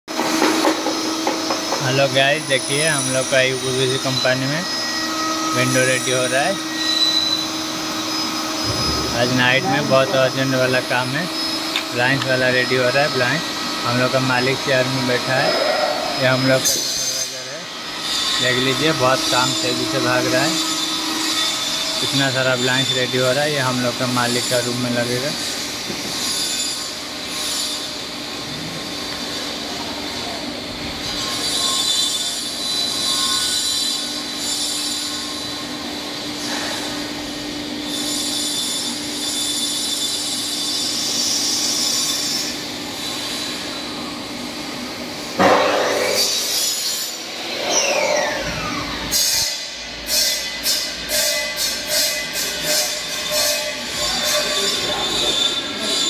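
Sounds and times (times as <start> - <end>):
falling machine whine: 0.4 - 17.6, 45.2 - 49.8
high-pitched hissing screech: 1.7 - 25.6, 45.4 - 56.0.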